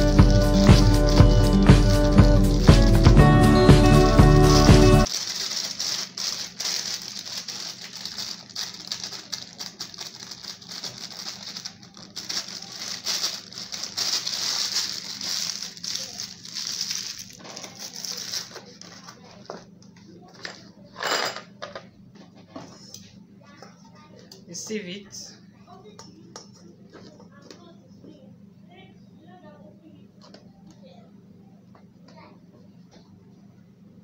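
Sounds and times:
plastic bag crinkling: 0:00.0 - 0:19.5.

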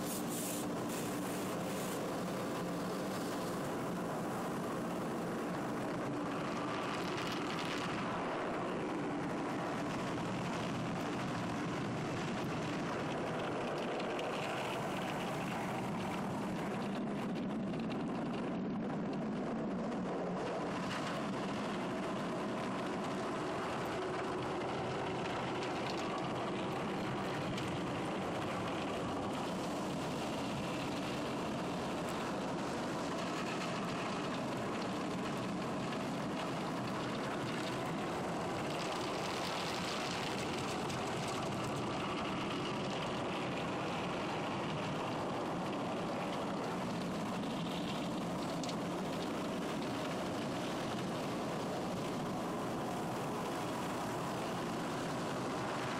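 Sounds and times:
car wash machinery hum: 0:00.0 - 0:04.5.

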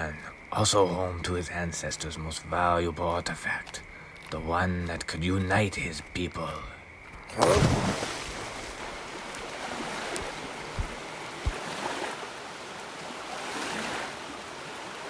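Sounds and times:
water rushing: 0:07.3 - 0:15.0
soft low thumps: 0:10.6 - 0:11.7.

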